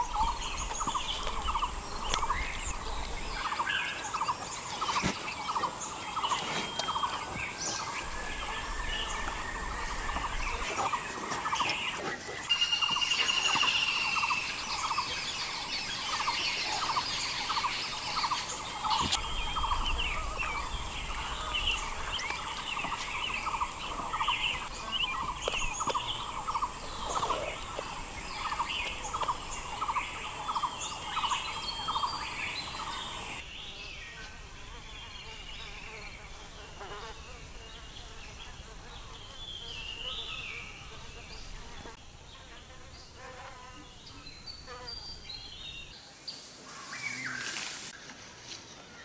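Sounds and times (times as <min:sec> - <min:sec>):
bird chirps: 0:00.0 - 0:34.2
high insect buzz: 0:00.0 - 0:45.3.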